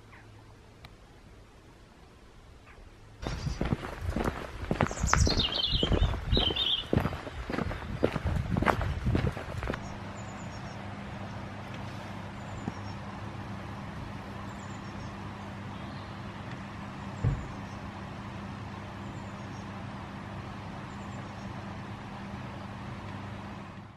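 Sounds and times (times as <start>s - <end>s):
background rumble: 0.0s - 18.2s
steady low hum: 0.0s - 23.9s
dull thump: 17.2s - 17.6s.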